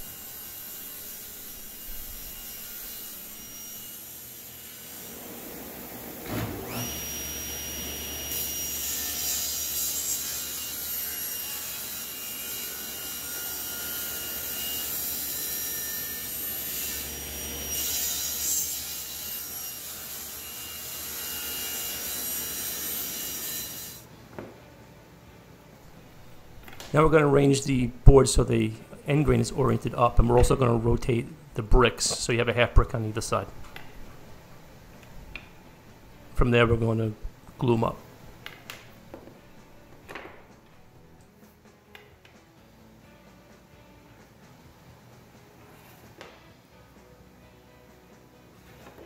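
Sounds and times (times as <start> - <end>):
table saw cutting wood: 0.0 - 24.1.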